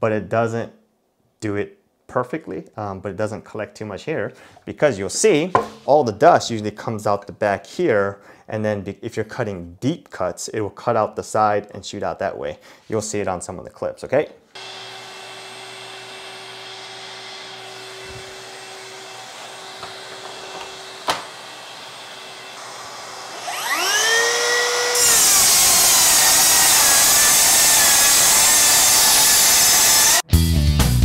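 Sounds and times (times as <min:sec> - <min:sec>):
circular saw cutting board: 0:05.4 - 0:06.1, 0:14.6 - 0:30.2
circular saw whining: 0:14.6 - 0:30.2.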